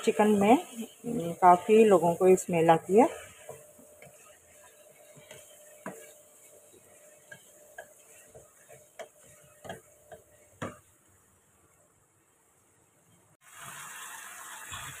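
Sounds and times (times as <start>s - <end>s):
wooden spatula scraping pan: 0.0s - 11.0s
oil sizzling: 0.0s - 15.0s.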